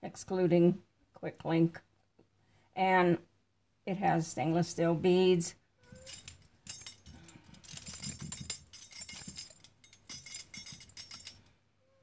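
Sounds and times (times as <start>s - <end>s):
metal clapper toy rattling: 5.8s - 11.5s.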